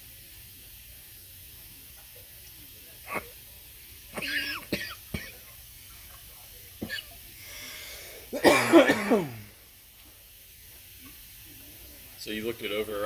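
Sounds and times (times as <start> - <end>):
person coughing: 4.2 - 5.4, 8.3 - 9.5.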